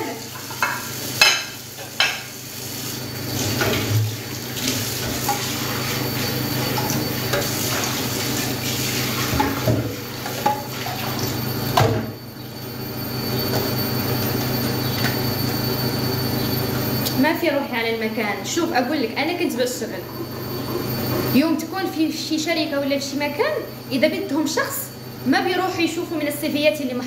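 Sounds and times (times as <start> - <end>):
tap running into sink: 9.1 - 12.1.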